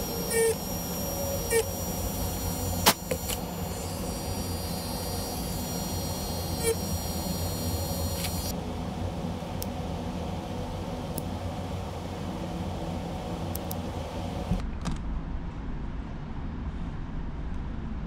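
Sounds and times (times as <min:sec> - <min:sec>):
rotary tool whining: 0:00.0 - 0:08.5
steady low hum: 0:00.0 - 0:17.1
small clicks: 0:08.1 - 0:08.5.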